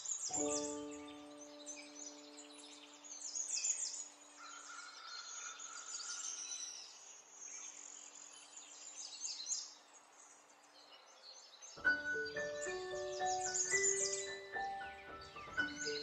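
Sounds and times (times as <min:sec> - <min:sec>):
songbirds chirping: 0:00.0 - 0:16.0
faint low music tone: 0:00.3 - 0:04.3.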